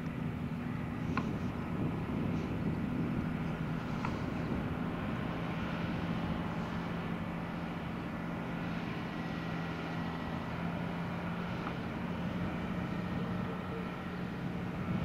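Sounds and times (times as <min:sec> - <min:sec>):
diesel truck engine running: 0:00.0 - 0:15.0.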